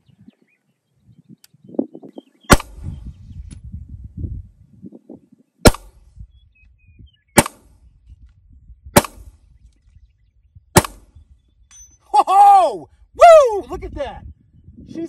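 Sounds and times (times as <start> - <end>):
pistol shots: 2.5 - 2.8, 5.6 - 5.9, 7.4 - 7.6, 9.0 - 9.3, 10.8 - 11.1.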